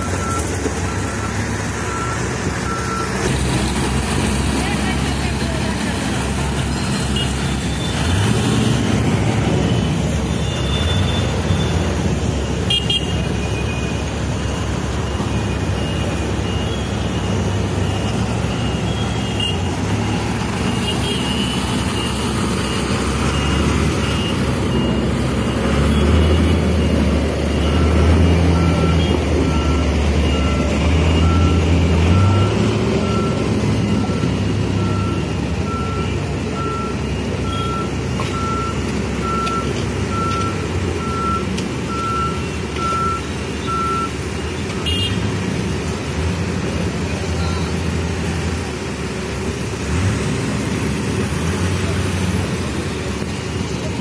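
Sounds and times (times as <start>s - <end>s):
reversing alarms beeping: 0.0s - 3.9s, 7.1s - 45.1s
heavy diesel engines running: 0.0s - 54.0s.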